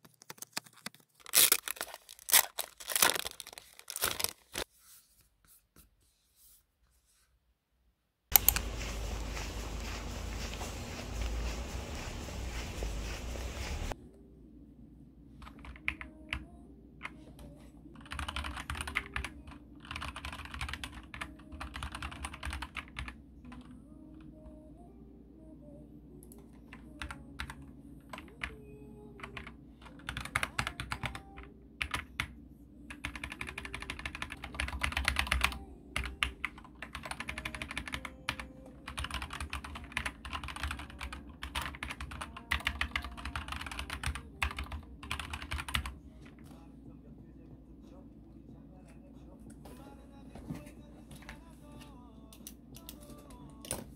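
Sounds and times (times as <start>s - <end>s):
typing on computer keyboard: 18.0s - 23.7s, 29.2s - 32.3s, 32.9s - 46.0s.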